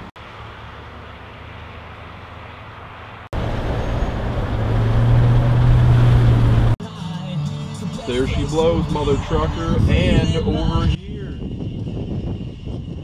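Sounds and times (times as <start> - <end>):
road noise: 0.0 - 13.0
low engine drone: 3.4 - 6.8.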